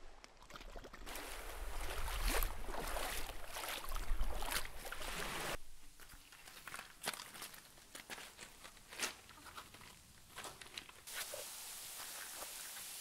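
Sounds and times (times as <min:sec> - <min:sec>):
wading through splashing water: 0:00.4 - 0:05.6.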